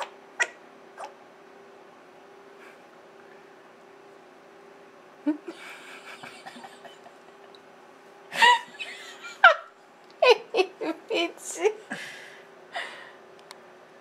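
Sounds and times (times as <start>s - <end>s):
people laughing: 5.3s - 7.5s.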